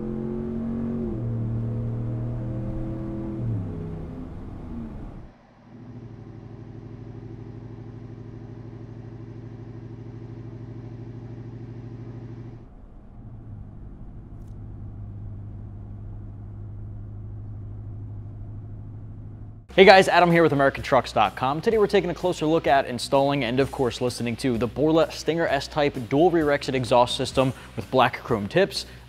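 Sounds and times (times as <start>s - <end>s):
engine idling through exhaust: 4.3s - 19.7s.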